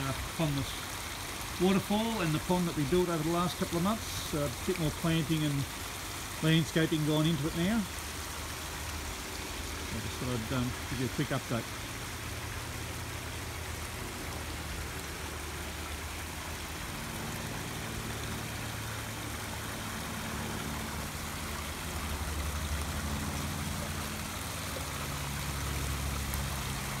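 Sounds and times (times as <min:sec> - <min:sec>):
waterfall splashing into pond: 0:00.0 - 0:27.0
low engine hum: 0:07.0 - 0:27.0.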